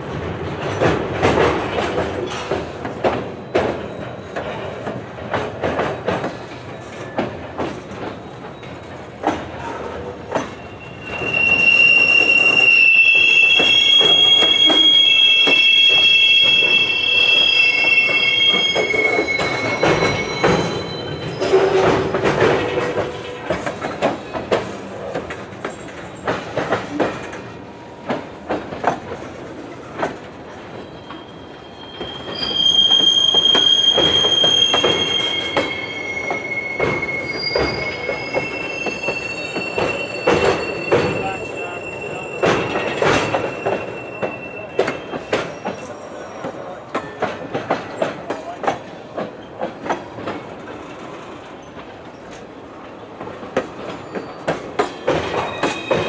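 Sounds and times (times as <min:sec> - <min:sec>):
train wheels squealing: 0:02.2 - 0:05.0, 0:06.0 - 0:24.5, 0:30.5 - 0:48.6, 0:53.6 - 0:56.0.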